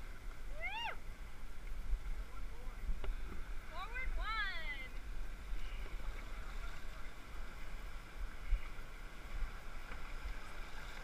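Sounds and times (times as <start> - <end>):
river water rushing and splashing: 0.0 - 11.0.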